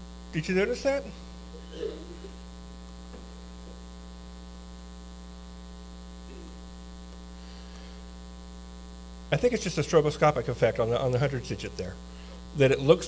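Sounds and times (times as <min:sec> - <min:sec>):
electrical mains hum: 0:00.0 - 0:13.0
faint murmur: 0:01.6 - 0:02.4, 0:06.3 - 0:06.7.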